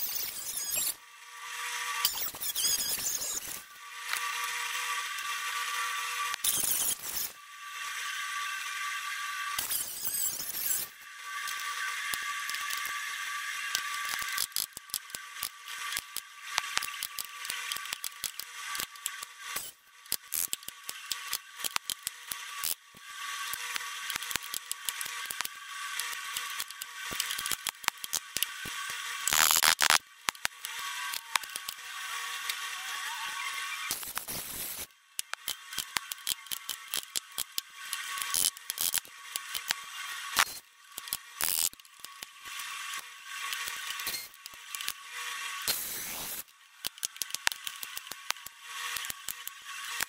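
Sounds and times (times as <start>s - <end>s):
sharp irregular clicks: 13.7s - 22.8s, 23.4s - 31.8s, 33.9s - 39.8s, 40.4s - 45.0s, 45.7s - 50.0s.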